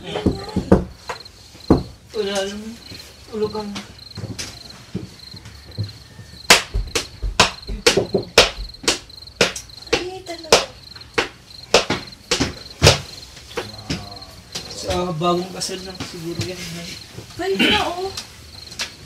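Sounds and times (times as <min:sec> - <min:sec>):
cricket chirping: 0:00.0 - 0:19.0
loud sharp bangs: 0:06.4 - 0:13.2.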